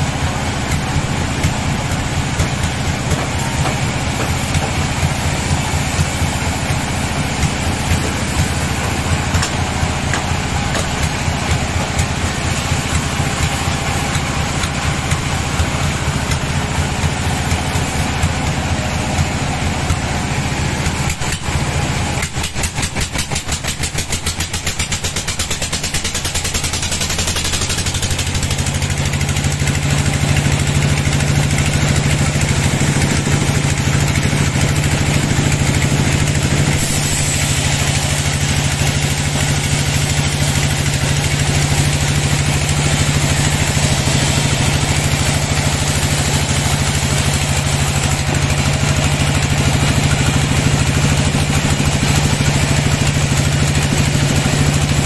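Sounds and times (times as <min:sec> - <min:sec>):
fast rhythmic clatter: 0:00.0 - 0:55.0
sawmill machine drone: 0:00.0 - 0:55.0.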